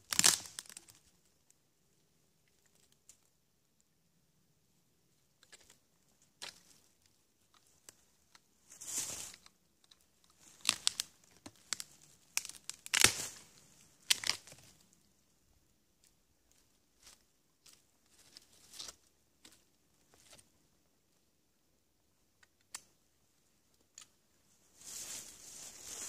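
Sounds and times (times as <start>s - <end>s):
rotten wood cracking and splintering: 11.7s - 13.2s, 14.1s - 14.6s.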